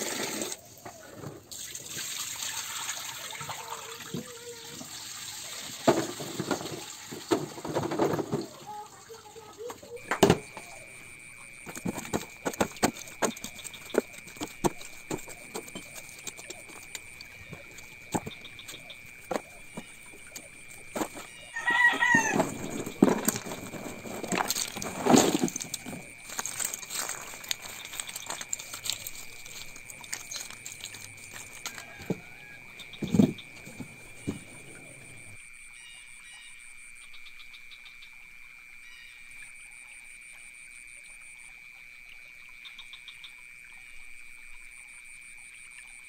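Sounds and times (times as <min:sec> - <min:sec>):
rooster crowing: 0:21.4 - 0:22.8, 0:31.4 - 0:33.2.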